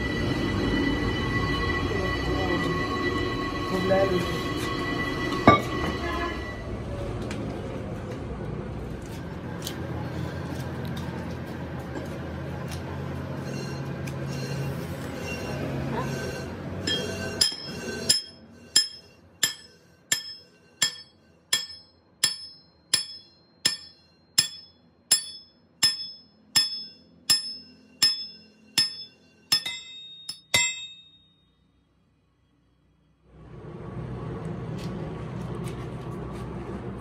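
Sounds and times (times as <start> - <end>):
hammer striking steel: 5.4 - 6.0, 16.8 - 31.3.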